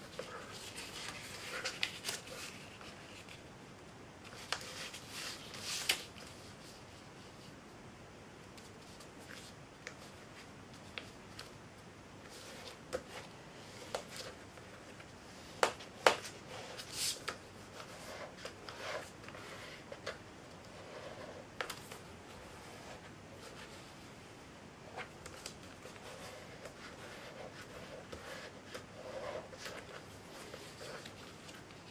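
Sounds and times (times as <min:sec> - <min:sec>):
paper crinkling and rustling: 0:00.0 - 0:03.4.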